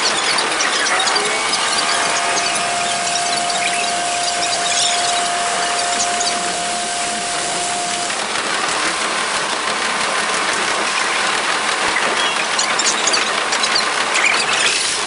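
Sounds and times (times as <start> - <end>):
steady tone: 0.7 - 9.1
sped-up train hiss and buzz: 0.8 - 9.8.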